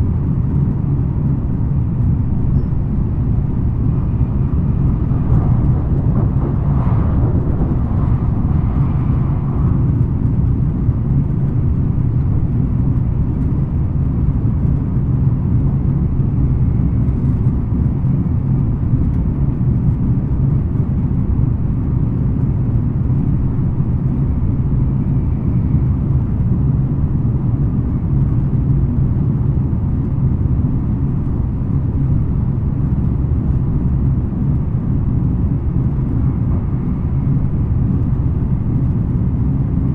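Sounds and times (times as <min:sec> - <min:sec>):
train wheels rumbling on rail: 0:00.0 - 0:39.9.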